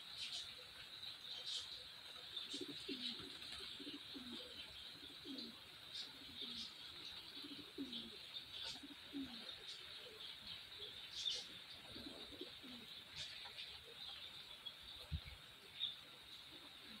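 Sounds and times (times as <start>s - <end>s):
faint hiss: 0.0s - 17.0s
small birds chirping: 0.0s - 17.0s
dove cooing: 1.4s - 14.1s, 16.2s - 17.0s.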